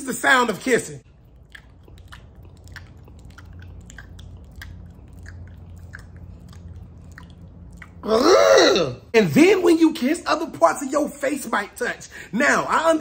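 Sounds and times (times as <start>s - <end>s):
steady low hum: 0.2s - 12.9s.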